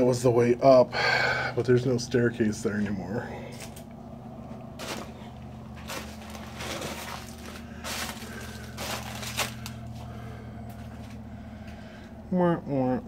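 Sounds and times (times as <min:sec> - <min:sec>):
low hum: 0:00.0 - 0:13.0
footsteps crunching over debris: 0:04.5 - 0:11.3.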